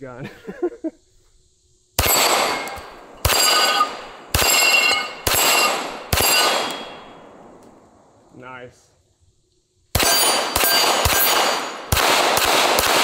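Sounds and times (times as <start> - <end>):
steel plate ringing clang: 2.0 - 7.3, 10.0 - 11.8
pistol shots: 2.0 - 7.6, 9.9 - 13.0.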